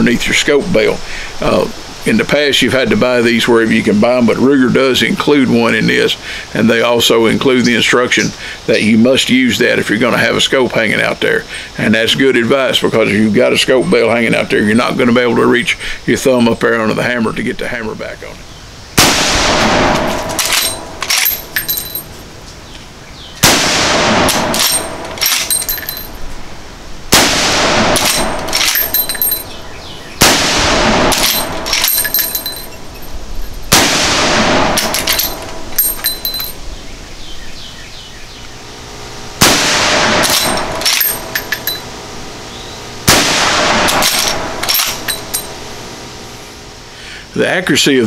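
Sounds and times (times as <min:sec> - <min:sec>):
rifle shots: 0:19.0 - 0:21.5, 0:23.4 - 0:26.1, 0:27.1 - 0:29.6, 0:30.2 - 0:32.9, 0:33.7 - 0:36.2, 0:39.4 - 0:41.8, 0:43.0 - 0:45.6
metallic ring: 0:20.0 - 0:22.3, 0:24.4 - 0:26.3, 0:28.0 - 0:29.6, 0:31.2 - 0:33.7, 0:34.8 - 0:36.6, 0:40.2 - 0:42.0, 0:43.9 - 0:45.6
rifle lever clacking: 0:20.2 - 0:21.8, 0:24.3 - 0:26.0.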